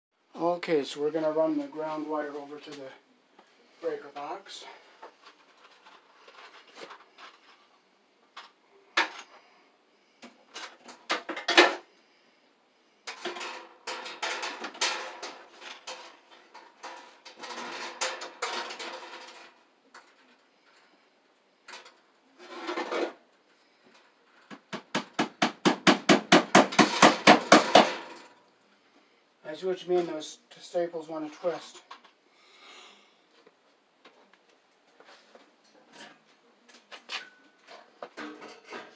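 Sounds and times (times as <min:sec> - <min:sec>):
scraping and rustling: 0:01.6 - 0:07.8, 0:21.8 - 0:24.5.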